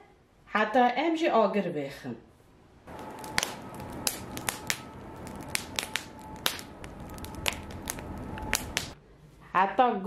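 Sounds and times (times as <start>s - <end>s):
wood fire crackling: 2.8s - 9.0s.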